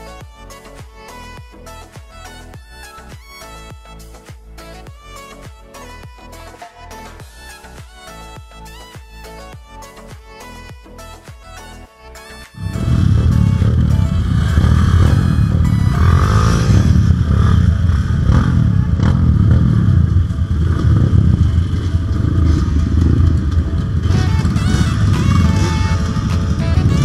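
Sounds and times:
dirt bike engine revving: 12.6 - 27.0.

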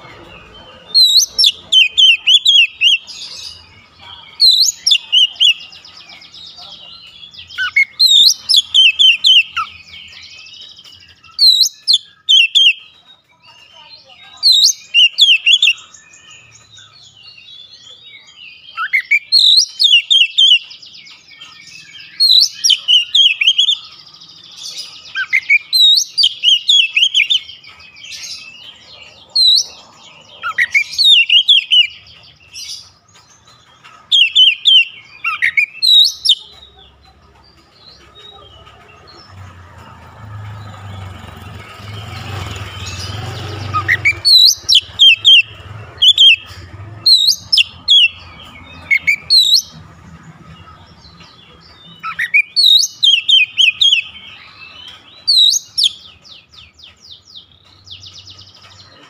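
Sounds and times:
bird singing whistled notes: 0.0 - 3.8, 4.4 - 5.8, 7.2 - 13.0, 14.4 - 28.8, 29.4 - 32.9, 34.1 - 36.4, 41.5 - 49.8, 51.9 - 58.6.

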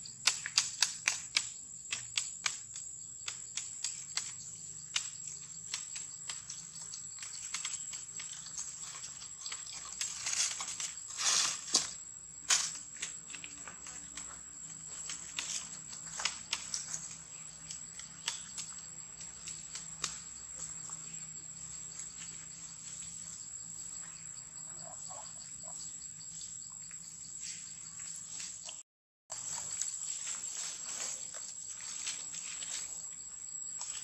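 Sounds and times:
dry leaves rustling: 5.8 - 14.2, 29.3 - 33.1.

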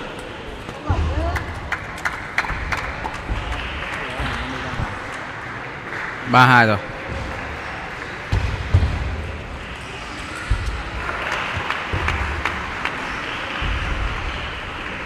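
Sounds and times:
sports hall noise: 0.0 - 15.0
low thumps: 0.8 - 5.2, 10.4 - 14.8.

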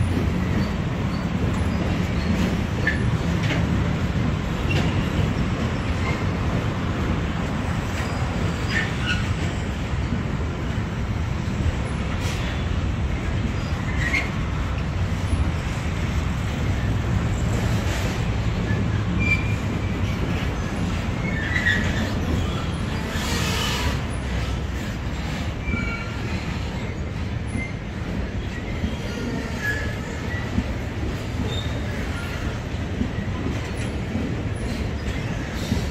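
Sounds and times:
train wheels rumbling on rail: 0.0 - 35.9
wheel squeals: 7.9 - 9.7, 13.5 - 14.5, 17.4 - 30.8, 31.4 - 35.9.

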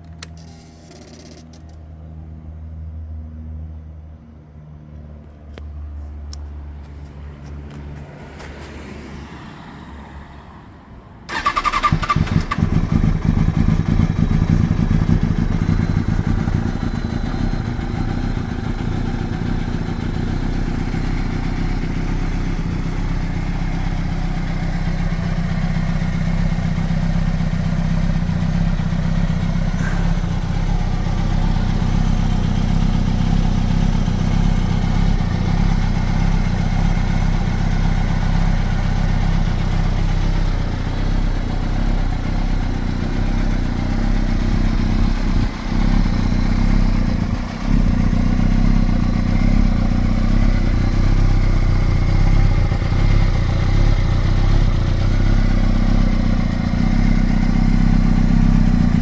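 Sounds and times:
motorcycle engine starting and idling: 0.0 - 2.2, 11.3 - 59.0.

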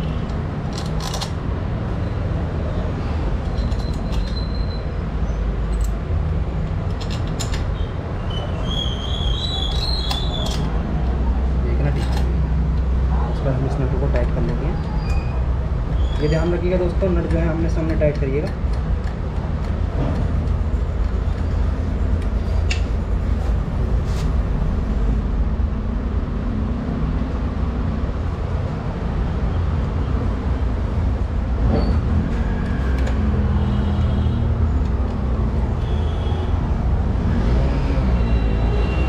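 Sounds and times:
low rumble of road traffic: 0.0 - 39.0.

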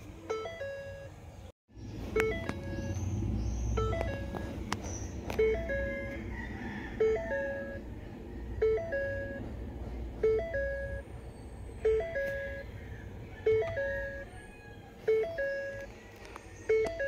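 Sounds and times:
car electronic warning chime: 0.2 - 1.2, 2.1 - 3.0, 3.7 - 8.0, 8.6 - 9.6, 10.2 - 11.1, 11.8 - 12.7, 13.4 - 14.4, 15.0 - 16.0, 16.6 - 17.0.

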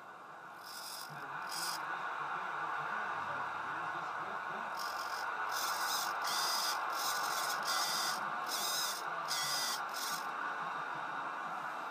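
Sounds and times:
servo motor whirring: 0.6 - 1.8, 4.8 - 10.3.

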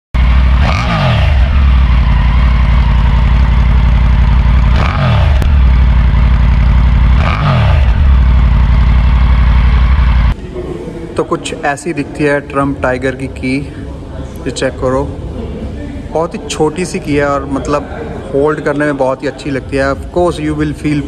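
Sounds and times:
motorcycle engine idling: 0.2 - 10.4
throttle blips revving engine: 0.2 - 10.4.

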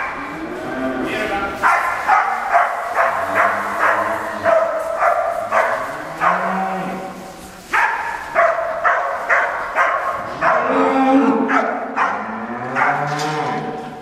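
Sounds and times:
dog barking: 1.6 - 6.5, 7.7 - 10.8, 11.5 - 13.1
cow mooing: 3.1 - 4.5, 5.8 - 7.2, 10.6 - 14.0.

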